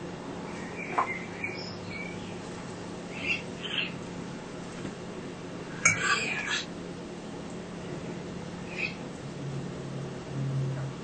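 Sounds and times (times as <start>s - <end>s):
steady low hum: 0.0s - 11.0s
birds chirping: 0.4s - 4.0s.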